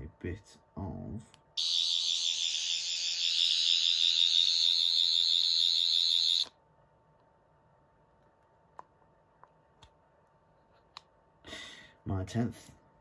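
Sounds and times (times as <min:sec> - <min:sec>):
high wavering electronic buzz: 0:01.6 - 0:06.5.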